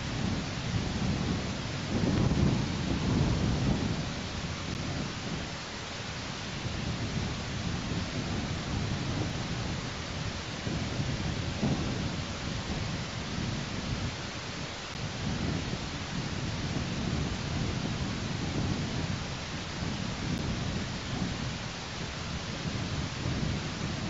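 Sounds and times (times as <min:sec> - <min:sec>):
wind gusting on microphone: 0:00.0 - 0:24.0.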